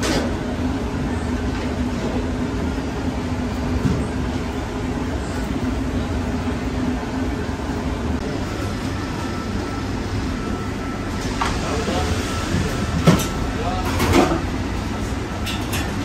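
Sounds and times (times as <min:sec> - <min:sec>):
machinery rumbling: 0:00.0 - 0:16.0.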